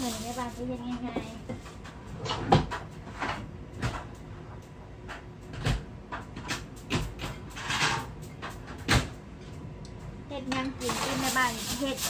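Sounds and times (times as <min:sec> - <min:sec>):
rustling clatter: 0:00.0 - 0:02.4, 0:10.8 - 0:12.0.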